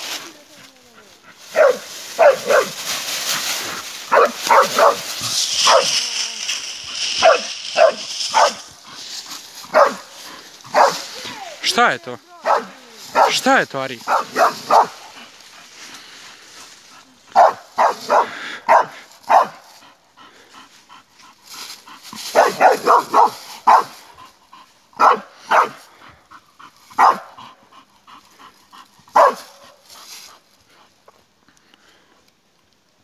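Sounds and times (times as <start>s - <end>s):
dog barking: 1.5s - 2.8s, 4.1s - 6.0s, 7.1s - 8.7s, 9.7s - 10.1s, 10.7s - 11.0s, 12.4s - 13.4s, 14.0s - 15.1s, 17.3s - 19.6s, 22.3s - 23.9s, 25.0s - 25.8s, 27.0s - 27.4s, 29.1s - 29.7s.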